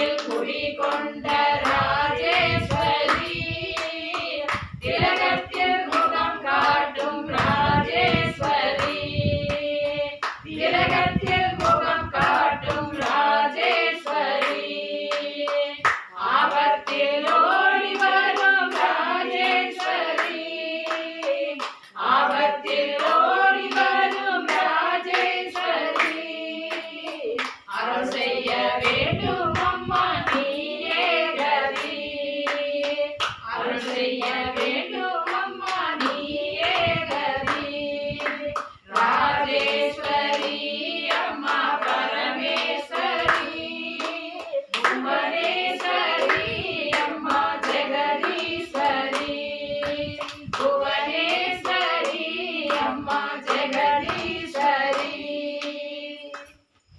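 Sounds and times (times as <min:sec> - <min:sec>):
hands clapping to a beat: 0:00.0 - 0:56.6
women singing devotional song: 0:00.0 - 0:56.9.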